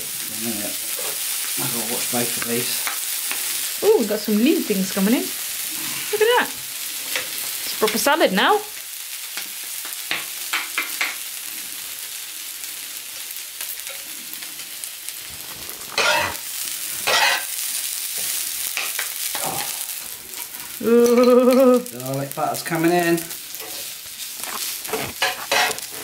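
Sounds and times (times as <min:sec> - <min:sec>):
food sizzling on a grill: 0:00.0 - 0:26.0
spatulas scraping grill plate: 0:15.3 - 0:17.6, 0:22.5 - 0:26.0.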